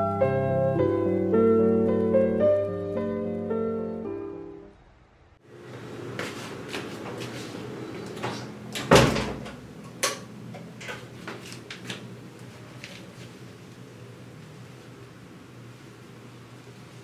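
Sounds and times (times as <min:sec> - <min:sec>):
door closing with a thud: 0:08.2 - 0:09.6.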